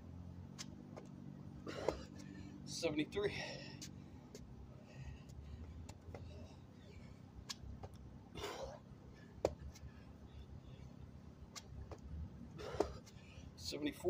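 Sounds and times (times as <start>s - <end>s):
low steady rumble: 0.0s - 14.0s
man breathing hard: 1.6s - 7.4s, 12.5s - 13.6s.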